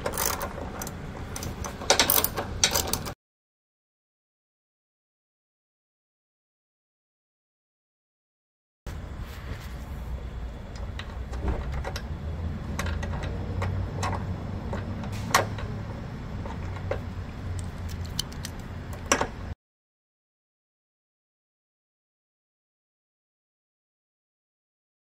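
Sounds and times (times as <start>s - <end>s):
steady low hum: 8.9s - 14.1s
socket wrench metallic clicks: 17.6s - 19.1s.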